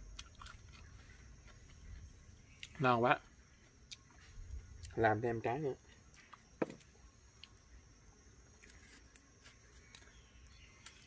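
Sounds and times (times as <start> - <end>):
knife peeling fruit: 8.5 - 11.0.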